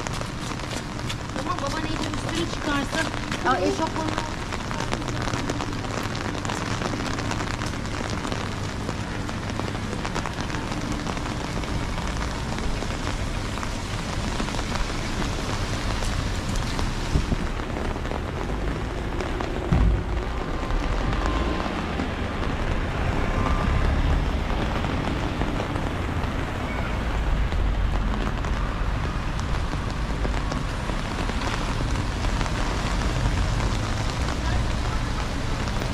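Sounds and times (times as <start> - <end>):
heavy rain falling: 0.0 - 35.9
low thump: 19.7 - 20.5.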